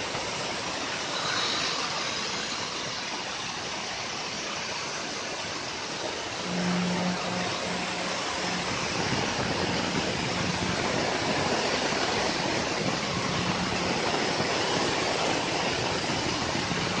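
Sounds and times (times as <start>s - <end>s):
router milling aluminium: 1.0s - 3.1s.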